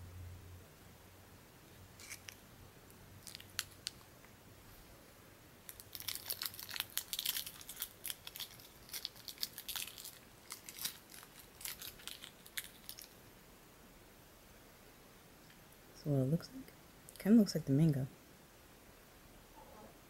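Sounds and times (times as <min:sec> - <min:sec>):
plastic wrapper crinkling: 0:02.0 - 0:02.4, 0:03.2 - 0:04.1, 0:05.7 - 0:13.2.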